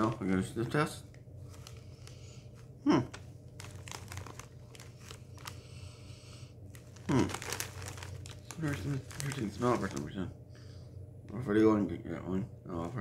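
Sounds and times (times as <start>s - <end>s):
snack bag crinkling: 1.4s - 5.9s, 6.6s - 10.2s.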